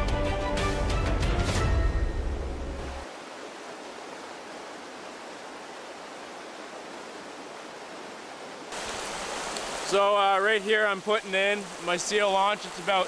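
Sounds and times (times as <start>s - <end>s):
creek rushing over rocks: 3.0s - 13.0s.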